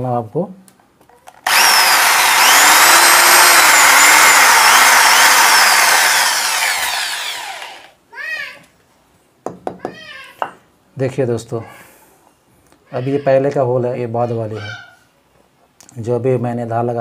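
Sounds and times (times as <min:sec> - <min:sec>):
electric drill boring into wood: 0:01.4 - 0:08.0.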